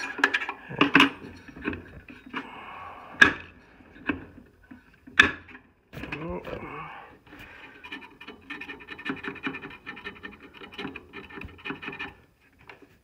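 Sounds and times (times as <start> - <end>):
metal-on-metal scraping and squeaking: 0.0 - 2.6, 7.4 - 12.8.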